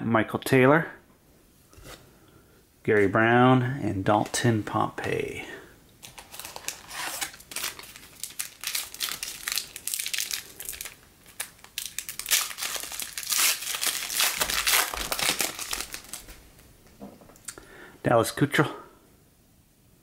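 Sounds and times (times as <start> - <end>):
wrapper crinkling and tearing: 6.0 - 16.4.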